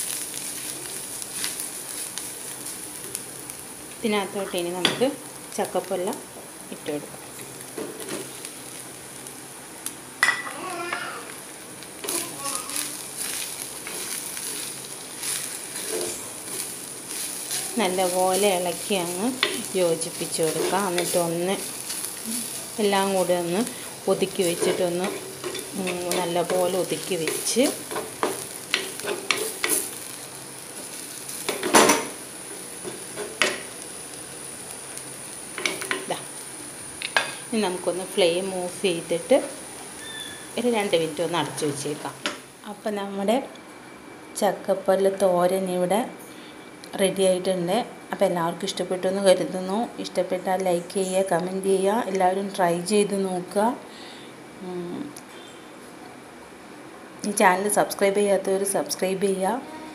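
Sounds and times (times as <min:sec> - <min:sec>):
food sizzling in oil: 0:00.0 - 0:43.4.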